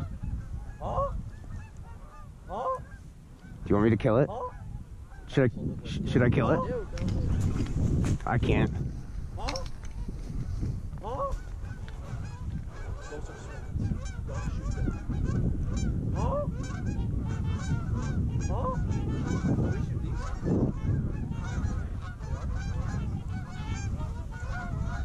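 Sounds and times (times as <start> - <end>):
geese honking: 0.0 - 3.6, 4.2 - 5.4, 11.0 - 25.0.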